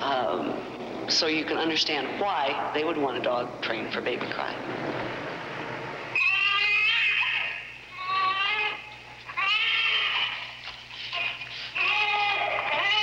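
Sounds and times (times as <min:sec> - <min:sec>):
baby crying: 0:06.2 - 0:13.0.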